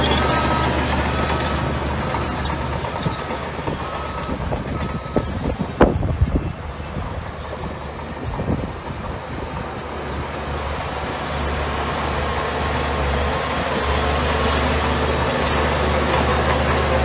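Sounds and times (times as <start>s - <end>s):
reversing alarm beeps: 0.0s - 6.6s
bulldozer diesel engine running: 0.0s - 17.0s.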